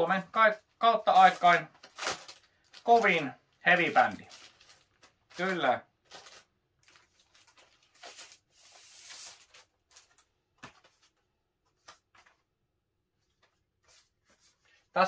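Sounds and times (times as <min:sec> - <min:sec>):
card sliding rub: 0:08.0 - 0:09.6.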